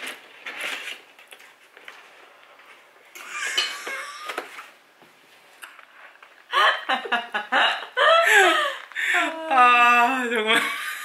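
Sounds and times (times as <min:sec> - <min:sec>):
paper gift box rustling: 0:00.0 - 0:03.1.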